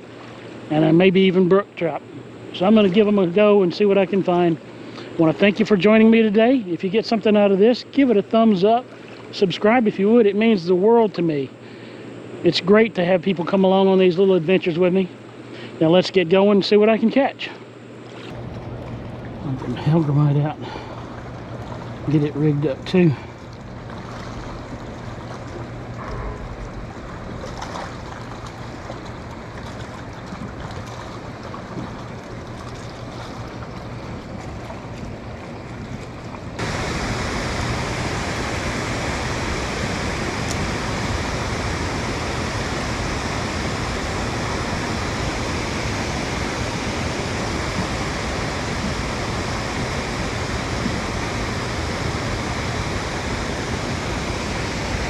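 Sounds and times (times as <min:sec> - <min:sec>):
water lapping around boat: 0:00.0 - 0:10.1, 0:17.6 - 0:55.0
water pouring down dam: 0:36.5 - 0:55.0.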